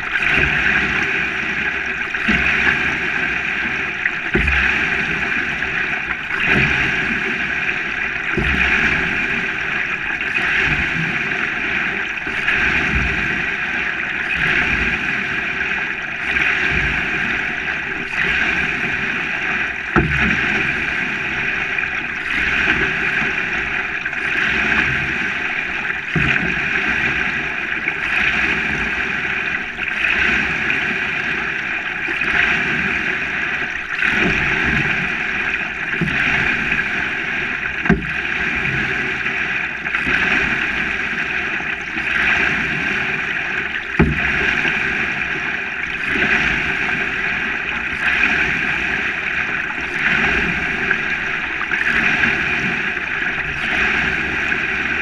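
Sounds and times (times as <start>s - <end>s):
water splashing along canoe hull: 0.0s - 55.0s
sharp knocks: 44.0s - 44.3s.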